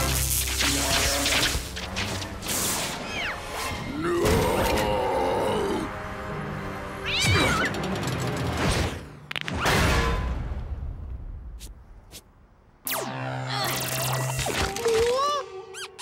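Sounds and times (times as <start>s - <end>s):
background music: 0.0s - 10.8s
cartoon cat shrieking: 7.0s - 7.7s.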